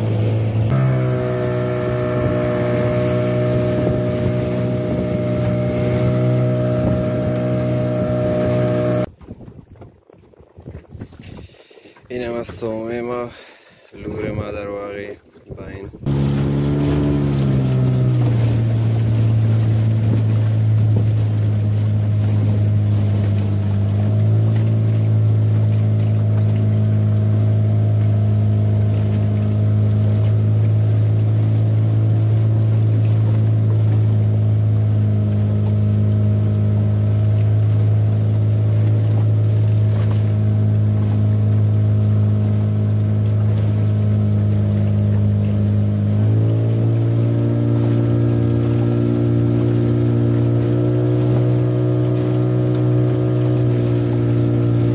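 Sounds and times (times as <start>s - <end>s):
outboard motor droning: 0.0s - 54.9s
wind: 0.0s - 54.9s.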